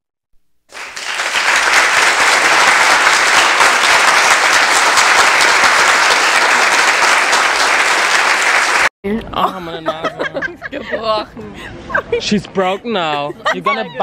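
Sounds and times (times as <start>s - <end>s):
crowd applause: 0.7s - 8.9s.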